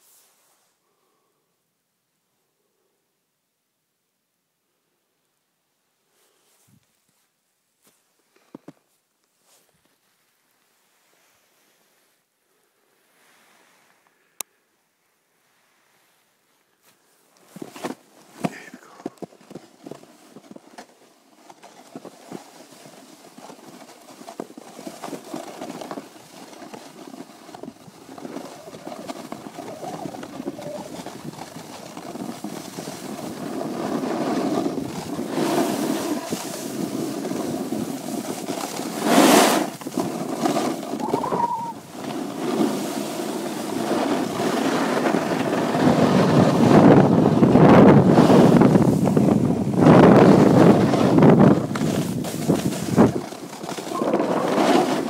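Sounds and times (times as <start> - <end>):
snowboard scraping on snow: 13.0 - 14.0, 19.3 - 55.0
wind on microphone: 28.2 - 31.9, 40.8 - 42.7, 43.6 - 55.0.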